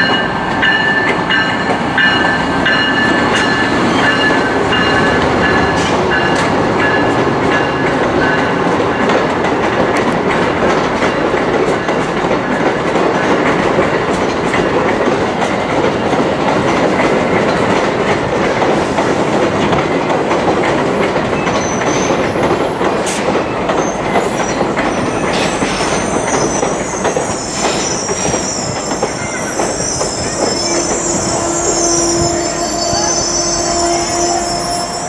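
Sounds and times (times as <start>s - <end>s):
train cars rumbling on rails: 0.0s - 35.0s
high-pitched metallic squeal: 23.8s - 35.0s
low steady squeal tone: 24.5s - 35.0s.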